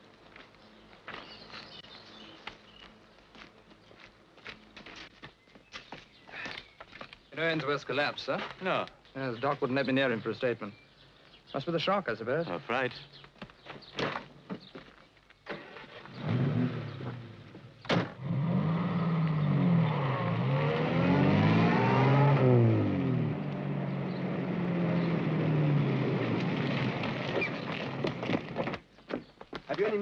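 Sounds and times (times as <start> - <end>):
car engine: 15.5 - 28.6.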